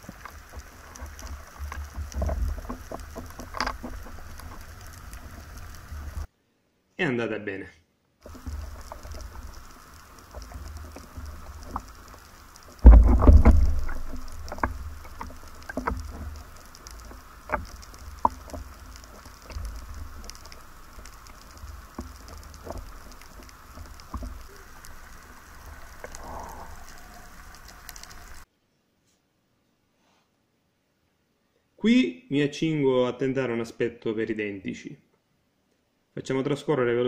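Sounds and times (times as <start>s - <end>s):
water sloshing underwater: 0.0s - 6.3s, 8.2s - 28.4s
sharp clicks: 8.2s - 28.4s
loud thump: 12.8s - 13.9s.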